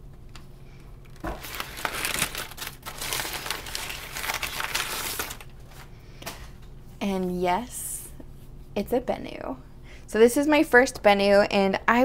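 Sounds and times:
packing paper crinkling: 1.0s - 5.9s.

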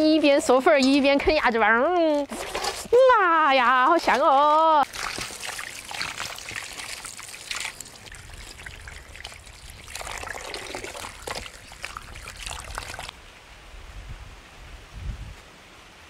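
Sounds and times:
outdoor background: 0.0s - 16.0s
hands rinsing meat in water: 3.5s - 13.1s
tap water trickling into basin: 3.9s - 13.1s.

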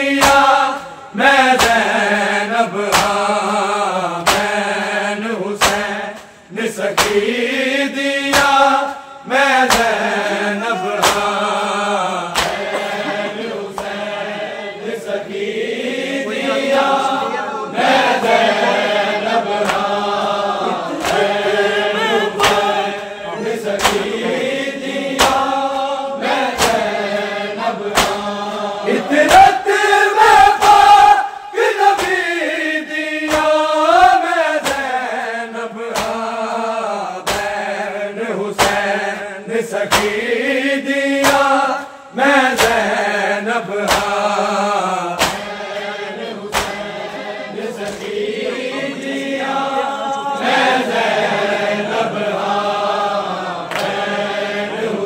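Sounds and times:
men chanting a lament: 0.0s - 55.0s
hand slaps on chest: 0.2s - 0.9s, 1.5s - 2.0s, 2.9s - 3.3s, 4.2s - 4.7s, 5.6s - 6.3s, 6.9s - 7.3s, 8.3s - 9.0s, 9.6s - 10.3s, 11.0s - 11.4s, 12.3s - 13.1s, 13.7s - 14.1s, 19.6s - 20.0s, 20.9s - 21.4s, 22.4s - 23.1s, 23.8s - 24.4s, 25.1s - 25.8s, 26.4s - 27.0s, 27.9s - 28.3s, 31.6s - 32.3s, 33.2s - 33.6s, 34.6s - 35.1s, 35.9s - 36.4s, 37.2s - 37.7s, 38.5s - 39.0s, 39.9s - 40.2s, 41.2s - 43.0s, 43.8s - 44.3s, 45.2s - 47.2s, 47.8s - 48.2s, 53.7s - 54.1s.

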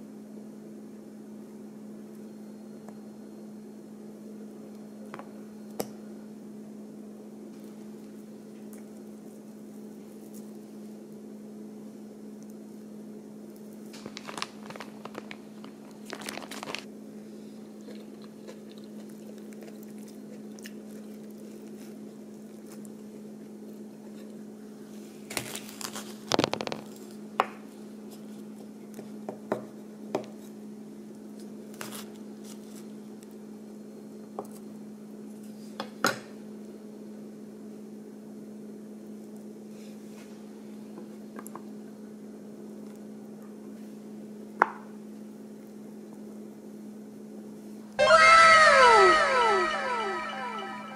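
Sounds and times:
low electrical hum: 0.0s - 50.9s
crunching and clicking: 13.5s - 16.9s, 17.8s - 23.1s.

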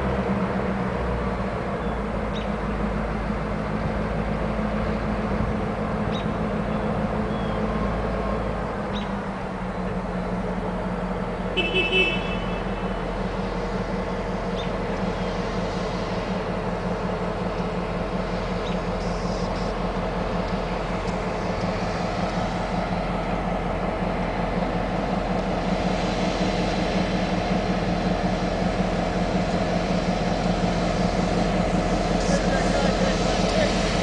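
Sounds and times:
diesel locomotive engine drone: 0.0s - 34.0s
train wheels hissing: 12.2s - 34.0s.

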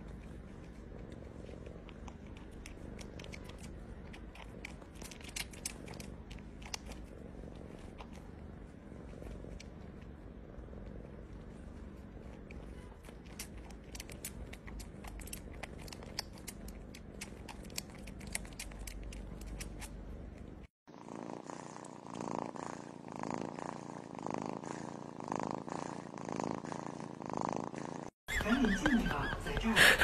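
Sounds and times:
cat purring: 0.0s - 30.0s
mother cat pulsing purr: 0.0s - 30.0s
wet sucking clicks: 1.7s - 8.2s, 13.0s - 20.7s.

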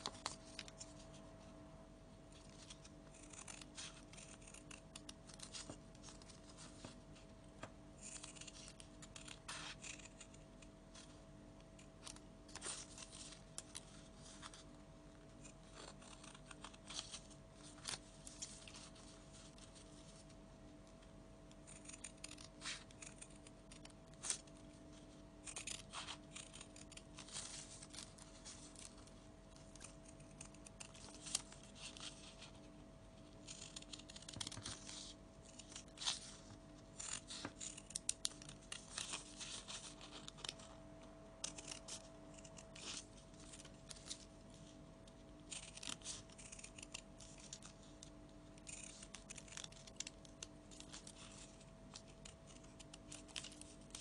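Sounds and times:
scissors snipping paper: 2.4s - 7.0s, 8.0s - 11.1s, 15.4s - 19.0s, 21.5s - 32.7s, 33.4s - 40.7s, 41.4s - 44.3s, 45.4s - 54.0s.

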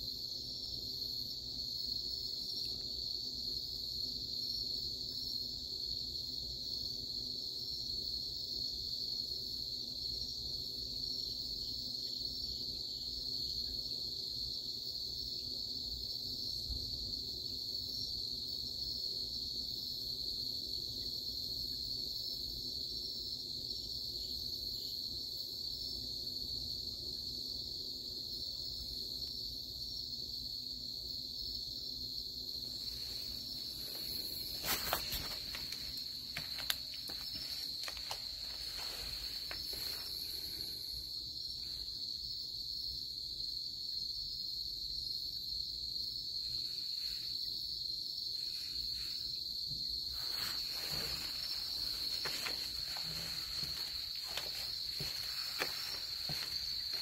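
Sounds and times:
night insects trilling: 0.0s - 57.0s
rustling: 32.7s - 40.7s, 50.1s - 57.0s.

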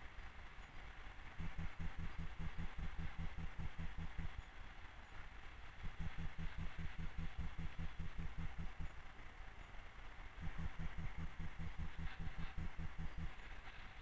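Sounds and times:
faint high whine: 0.0s - 14.0s
steady hiss: 0.0s - 14.0s
low machine throb: 1.4s - 4.4s, 5.8s - 9.0s, 10.4s - 13.4s.

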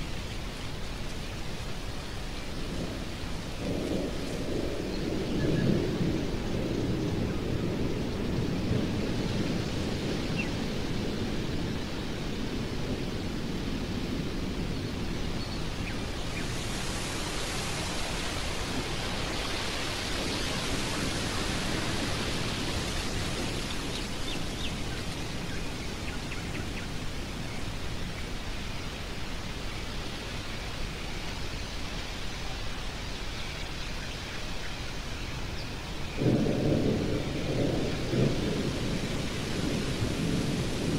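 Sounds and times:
stormy wind blowing: 0.0s - 40.9s
low thunder rumble: 2.2s - 28.5s, 35.9s - 40.9s.

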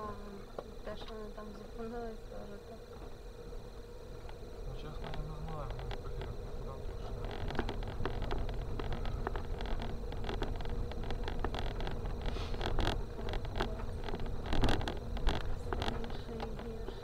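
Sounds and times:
engine and tyre rumble: 0.0s - 17.0s
stones knocking under car: 4.9s - 17.0s.

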